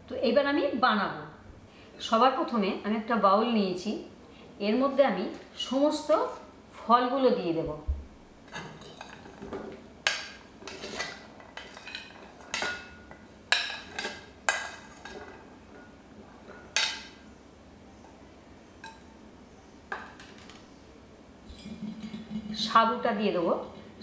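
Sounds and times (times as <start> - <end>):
metal spoon scraping a plate: 10.6 - 13.0.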